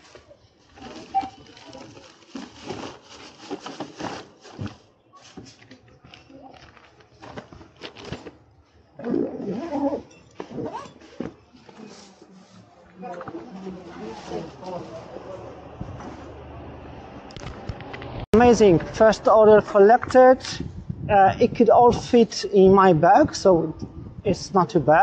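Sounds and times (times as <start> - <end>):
plastic bags rustling: 0.0 - 8.7, 10.3 - 15.4.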